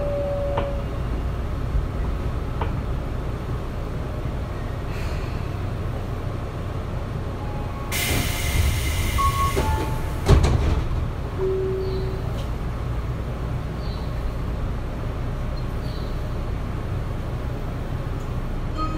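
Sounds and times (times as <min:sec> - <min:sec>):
train car low hum: 0:00.0 - 0:18.9
compressed-air hiss: 0:08.0 - 0:09.8.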